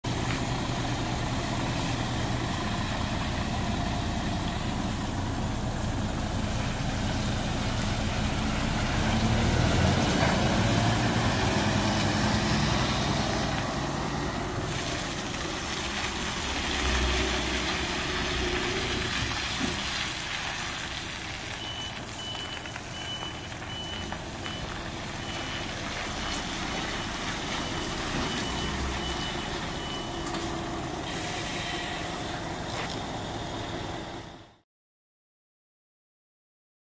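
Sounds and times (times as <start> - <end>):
diesel truck engine running: 0.0 - 34.6
reversing alarm beeping: 21.5 - 30.5.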